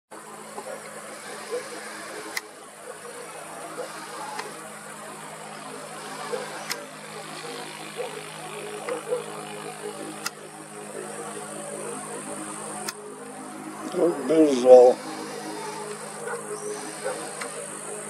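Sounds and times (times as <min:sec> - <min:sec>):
engine hum: 0:00.1 - 0:18.0
sharp clicks: 0:02.3 - 0:02.5, 0:06.6 - 0:06.9, 0:10.2 - 0:10.4.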